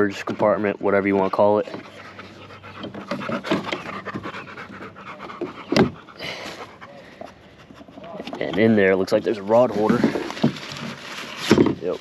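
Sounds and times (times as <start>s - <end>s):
dog panting: 1.0s - 9.7s.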